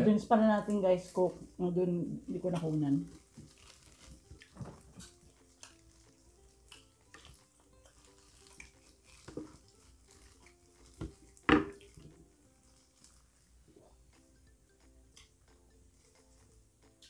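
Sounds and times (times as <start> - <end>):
quiet background music: 0.0 - 17.0
plastic gloves rustling: 0.1 - 14.1
chewing: 2.4 - 14.0, 15.2 - 17.0.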